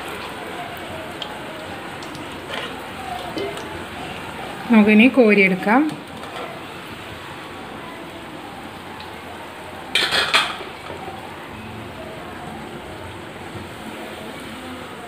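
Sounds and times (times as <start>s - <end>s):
deep-frying in hot oil: 0.0s - 15.0s
metal skimmer clinking on pan: 2.5s - 3.8s.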